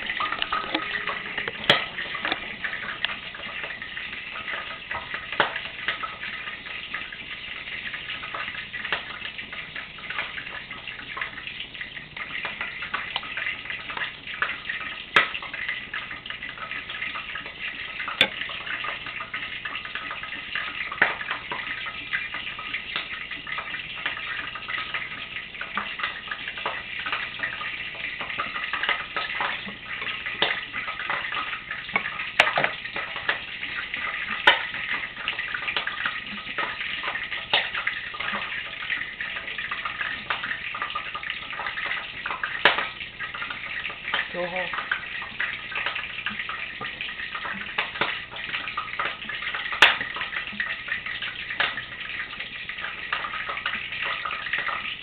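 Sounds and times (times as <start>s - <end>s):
fish cakes sizzling in oil: 0.0s - 55.0s.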